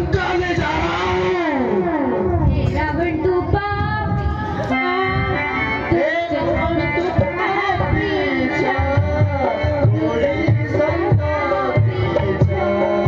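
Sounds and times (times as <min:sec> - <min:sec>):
person singing through microphone: 0:00.0 - 0:13.0
harmonium melody: 0:01.6 - 0:13.0
hand drum beats: 0:07.2 - 0:13.0.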